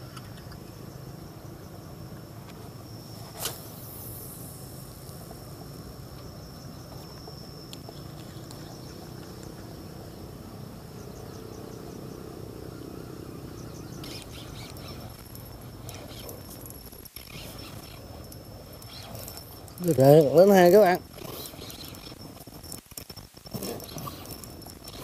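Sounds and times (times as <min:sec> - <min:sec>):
thin high tone: 0:12.2 - 0:22.8
fishing reel whirring: 0:13.3 - 0:25.0.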